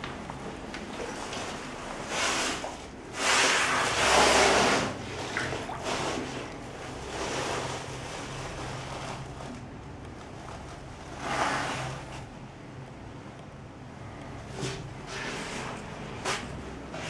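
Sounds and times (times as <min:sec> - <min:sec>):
water sloshing from wading: 0:00.0 - 0:13.1.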